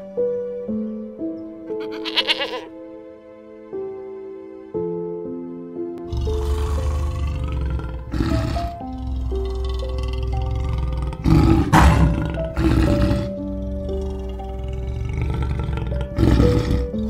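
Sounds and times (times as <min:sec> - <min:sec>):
sustained keyboard music: 0:00.0 - 0:17.0
lion roaring: 0:06.0 - 0:17.0.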